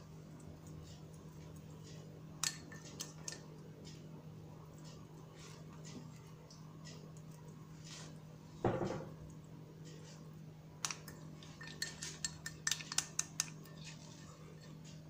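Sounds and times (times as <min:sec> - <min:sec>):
low steady hum: 0:00.0 - 0:15.0
spoon clinking against bowl: 0:11.0 - 0:14.8.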